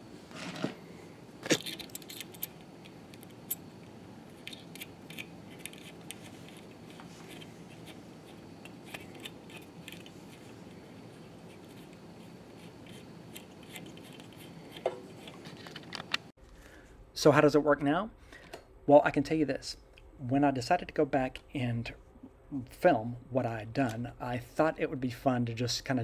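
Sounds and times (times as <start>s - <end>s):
small metal clicks and clinks: 1.6s - 3.6s.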